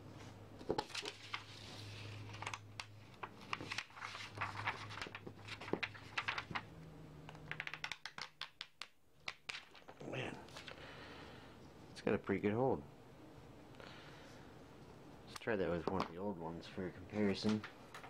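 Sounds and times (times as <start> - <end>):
paper rustling: 0.6 - 6.7, 17.1 - 17.7.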